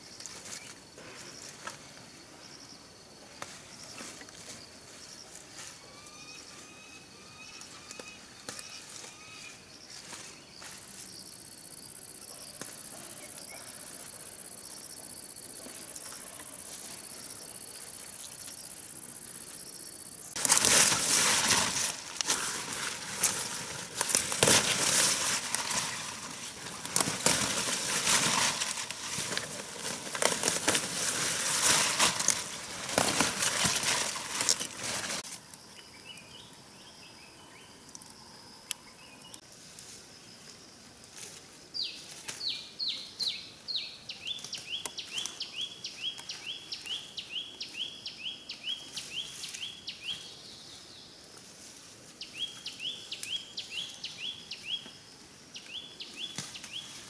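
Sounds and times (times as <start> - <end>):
leaves rustling and crackling: 7.6 - 35.7, 39.4 - 42.9, 48.6 - 50.3, 55.6 - 57.0.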